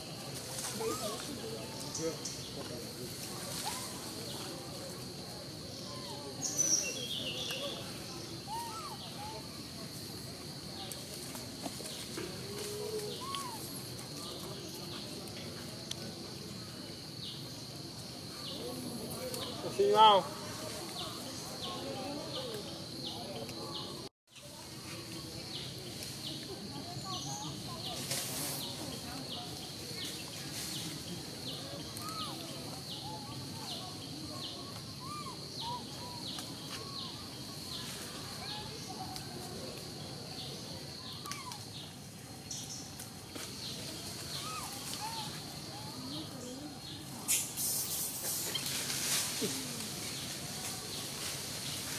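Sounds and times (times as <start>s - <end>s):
insects droning: 0.0s - 51.9s
faint chirp: 5.6s - 9.9s.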